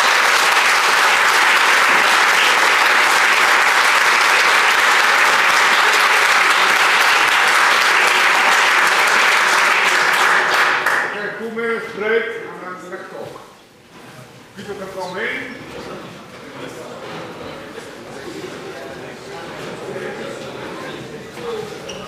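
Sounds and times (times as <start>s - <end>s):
large audience applauding: 0.0s - 11.2s.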